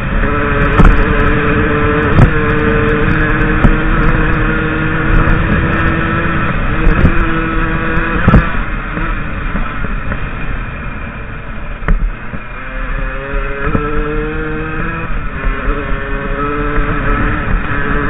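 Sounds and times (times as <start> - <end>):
motorcycle engine revving: 0.0 - 18.0
wind rumble on microphone: 0.0 - 18.0.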